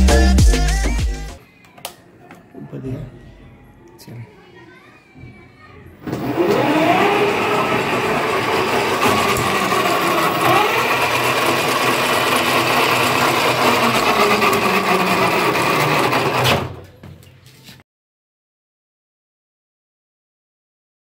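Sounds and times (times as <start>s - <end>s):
electric motor whining: 6.1s - 16.6s.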